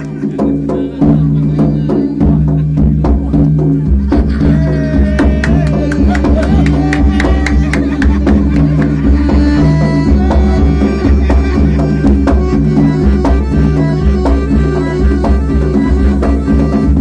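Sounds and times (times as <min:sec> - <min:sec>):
drums in quick uneven rhythm: 0:00.0 - 0:17.0
sustained melodic notes: 0:07.5 - 0:17.0.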